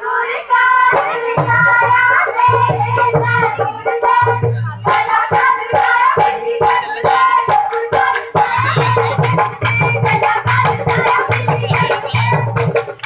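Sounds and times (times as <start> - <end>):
women singing folk song: 0.0 - 12.8
drum beat: 0.5 - 13.0
hand claps: 8.2 - 13.0.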